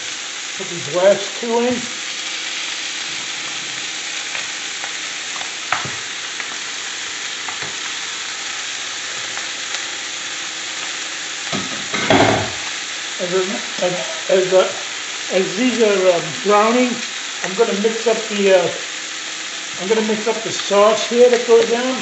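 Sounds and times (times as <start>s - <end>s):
chicken sizzling in a frying pan: 0.0s - 22.0s.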